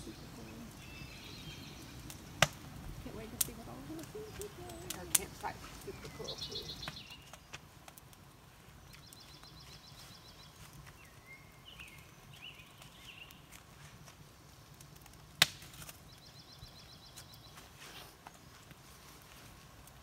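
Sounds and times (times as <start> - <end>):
small birds calling: 0.0 - 7.7, 8.6 - 13.6, 15.9 - 18.2.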